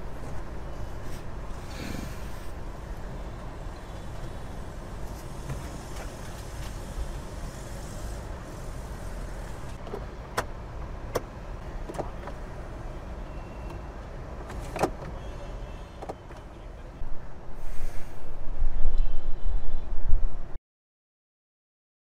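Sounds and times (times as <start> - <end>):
car rumbling: 0.0 - 17.2.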